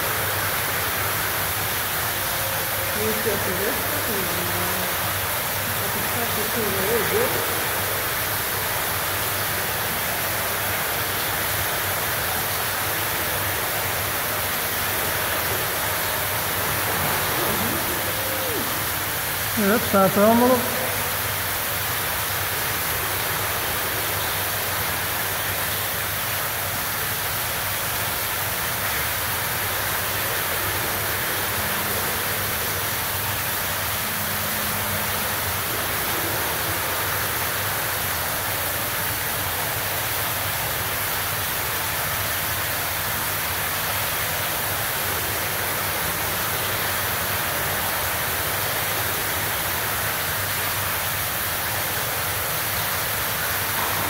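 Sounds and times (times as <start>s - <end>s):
whooshing hiss: 0.2s - 20.0s.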